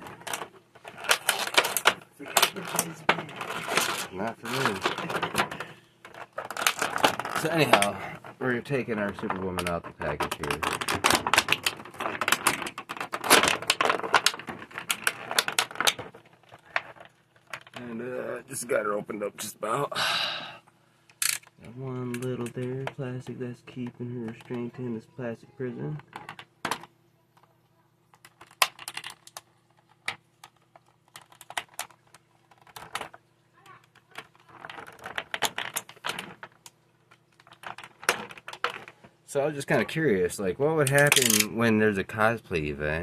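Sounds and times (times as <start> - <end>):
plastic packaging crackling: 0.0 - 17.8, 28.1 - 39.3.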